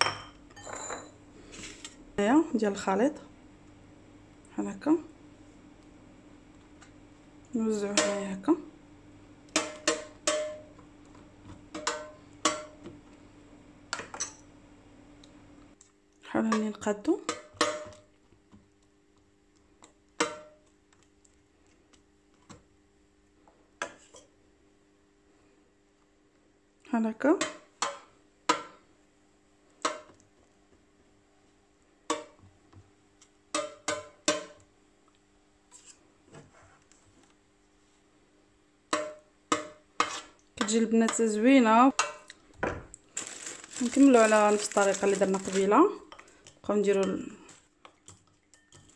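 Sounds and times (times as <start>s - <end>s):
metal spoon clinking on metal pan: 9.6s - 10.7s, 48.5s - 48.9s
spoon clinking on metal pan: 48.5s - 48.9s.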